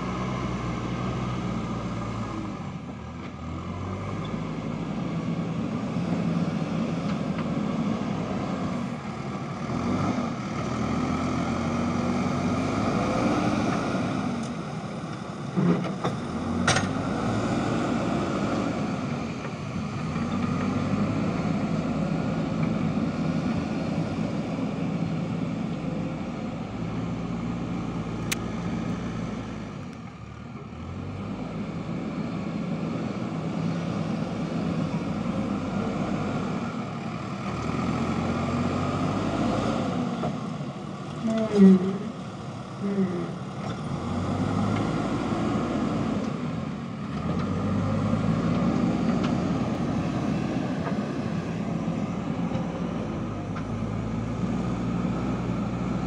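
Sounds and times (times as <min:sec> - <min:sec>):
diesel engine under load: 0:00.0 - 0:56.0.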